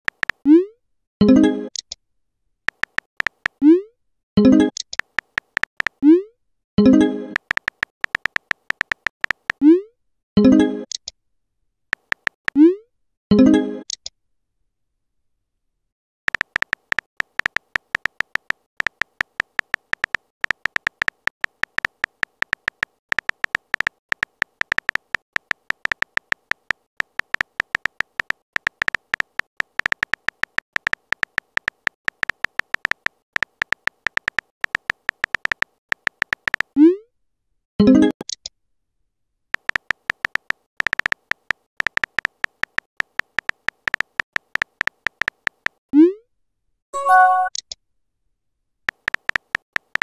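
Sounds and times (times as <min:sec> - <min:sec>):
keyboard typing clicks: 0:00.0 - 0:00.6, 0:02.7 - 0:03.7, 0:04.4 - 0:06.1, 0:06.8 - 0:09.7, 0:11.9 - 0:12.7, 0:16.3 - 0:36.8, 0:39.6 - 0:45.8, 0:48.9 - 0:50.0.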